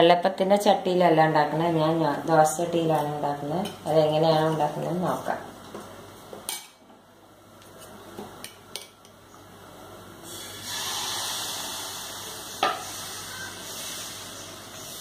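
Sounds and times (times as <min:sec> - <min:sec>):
batter sizzling on a hot pan: 0:10.3 - 0:15.0.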